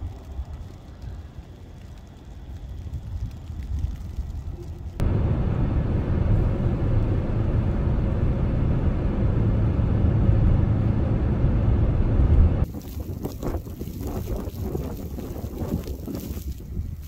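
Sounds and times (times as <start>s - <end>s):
truck engine and tyres rumbling: 0.0s - 17.0s
wind: 0.0s - 17.0s.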